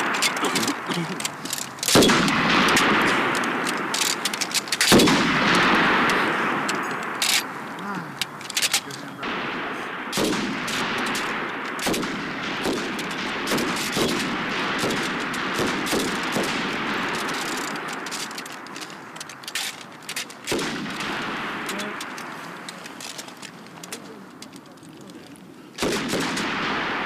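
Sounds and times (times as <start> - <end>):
machine gun shots and bursts: 1.8 - 7.5, 9.2 - 19.7, 20.4 - 22.4, 25.8 - 27.0
gunshot echo: 1.8 - 7.6, 9.2 - 19.1, 20.4 - 24.2, 25.8 - 27.0.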